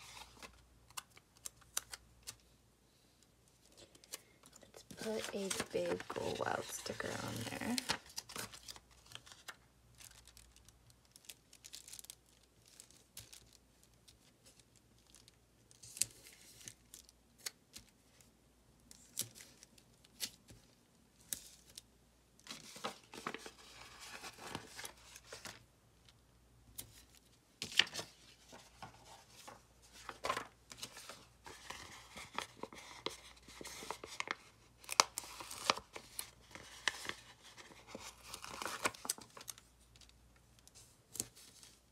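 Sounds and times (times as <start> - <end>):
stickers peeling and paper rustling: 3.6 - 18.2
plastic sheet crackling: 4.9 - 8.7.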